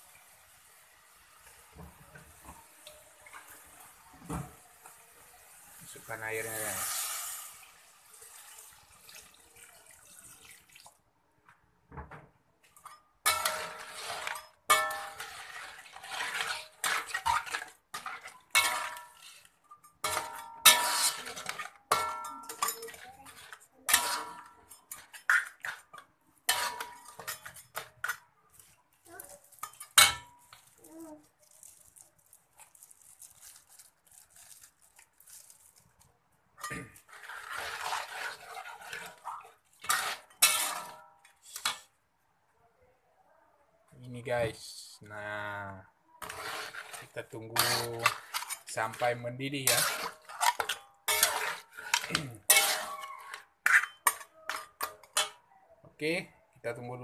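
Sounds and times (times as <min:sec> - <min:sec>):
metal ladle scraping steel wok: 0:06.3 - 0:07.6, 0:12.8 - 0:28.2, 0:36.6 - 0:41.9, 0:46.2 - 0:55.4.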